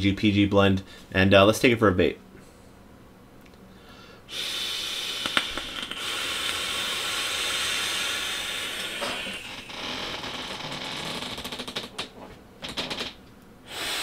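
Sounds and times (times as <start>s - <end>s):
vaping coil hiss: 4.3s - 10.6s, 13.7s - 14.0s.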